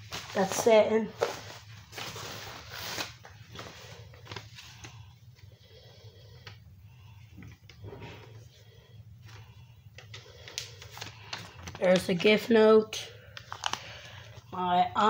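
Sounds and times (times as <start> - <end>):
cardboard packaging rustling: 0.0 - 5.5, 9.2 - 12.5, 13.4 - 14.4.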